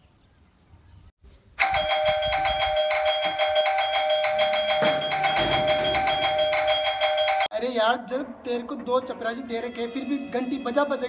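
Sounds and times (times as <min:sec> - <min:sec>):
electric bell ringing: 0:01.6 - 0:07.5.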